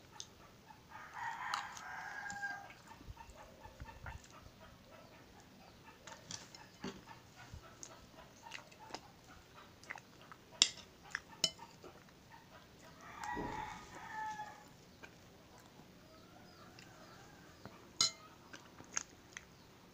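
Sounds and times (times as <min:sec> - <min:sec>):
quiet eating sounds: 0:00.0 - 0:19.9
rooster crowing: 0:00.9 - 0:02.8, 0:13.0 - 0:14.7
spoon clinking on ceramic plate: 0:18.0 - 0:18.3.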